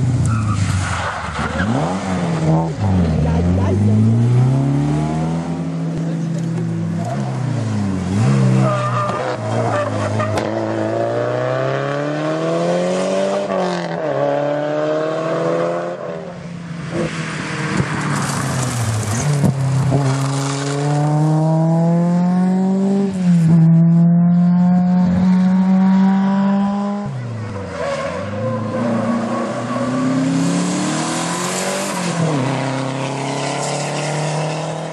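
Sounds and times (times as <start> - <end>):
rally car engines at full throttle: 0.0 - 34.9.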